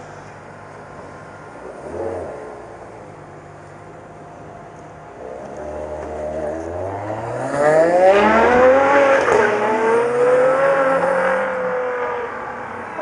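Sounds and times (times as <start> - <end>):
car engine accelerating hard: 5.2 - 13.0.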